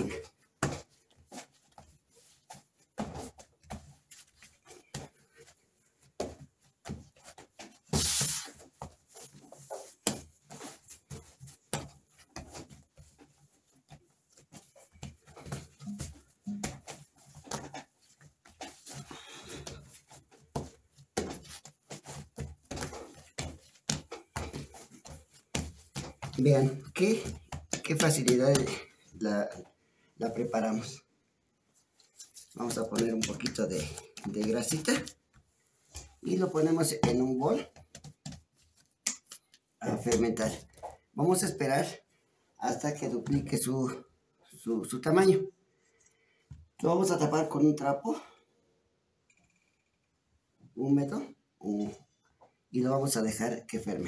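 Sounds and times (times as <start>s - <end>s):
dough kneaded thumps and slaps: 0.0s - 29.7s, 32.6s - 41.1s.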